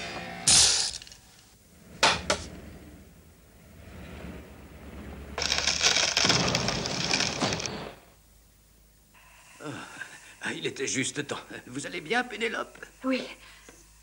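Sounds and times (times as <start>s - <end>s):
hiss turning into dense crackling: 5.4s - 8.1s.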